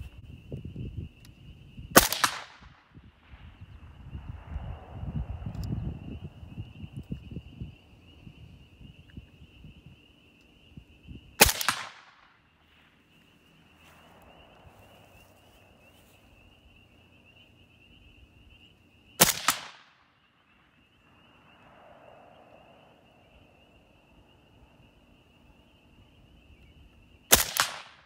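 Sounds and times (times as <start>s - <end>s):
suppressed rifle shot: 2.0s - 3.0s, 11.4s - 12.4s, 19.2s - 20.0s, 27.3s - 28.0s.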